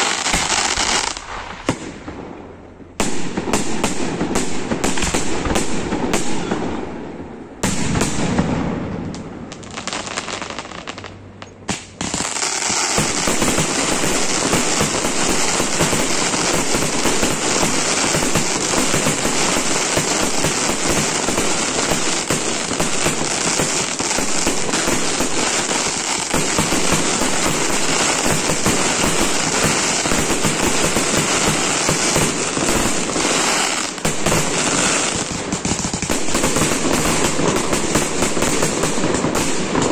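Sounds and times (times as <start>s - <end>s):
rapid firework bangs and crackling: 0.0s - 7.0s, 7.6s - 39.9s.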